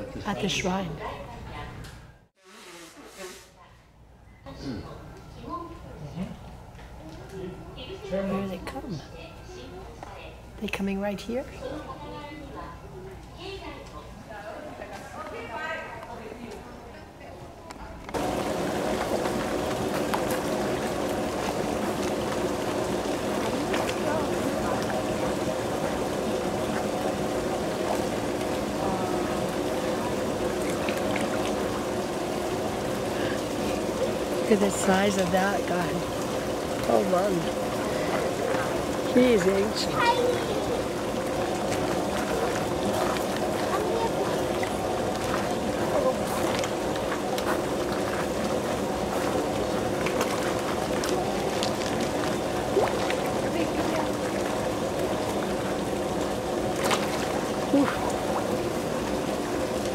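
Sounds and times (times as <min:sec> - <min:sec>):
small splashes: 0:18.1 - 0:59.9
water splashing and trickling: 0:18.1 - 0:59.9.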